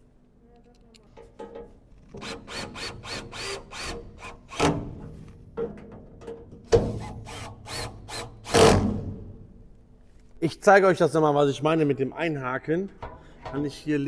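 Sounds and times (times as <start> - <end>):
cordless drill driving screws: 2.1 - 4.7, 7.0 - 8.8.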